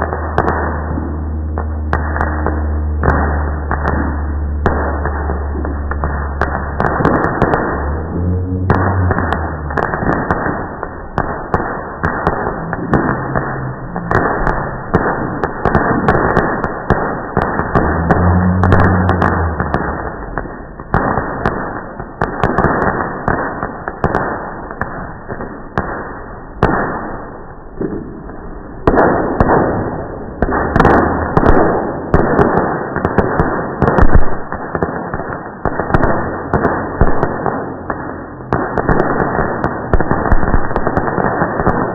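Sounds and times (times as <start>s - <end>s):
slowed fireworks bangs and crackling: 0.0s - 41.9s.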